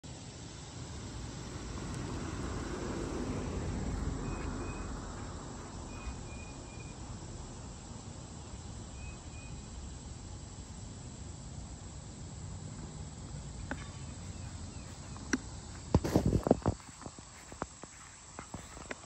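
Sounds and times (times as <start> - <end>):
outdoor background noise: 0.0 - 19.0
faint high chirps: 5.9 - 7.1, 8.9 - 9.8.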